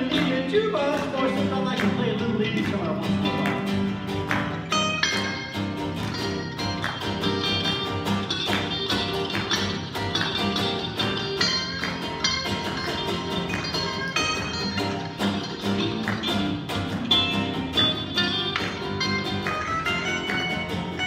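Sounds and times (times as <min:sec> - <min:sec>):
electric guitar lead lines: 0:00.0 - 0:21.0
strummed acoustic guitar: 0:00.0 - 0:21.0.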